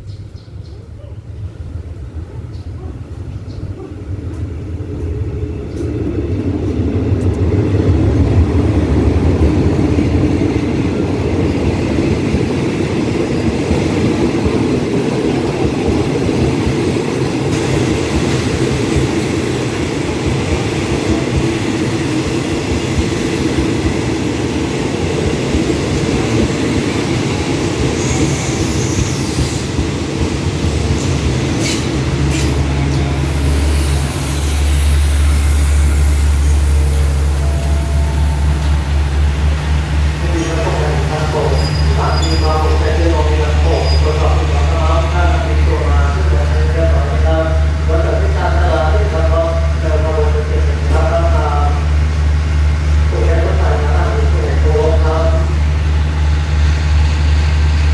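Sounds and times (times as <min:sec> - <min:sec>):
train wheels rumbling on rail: 0:00.0 - 0:57.9
high brake squeal: 0:28.0 - 0:29.7, 0:41.4 - 0:42.8.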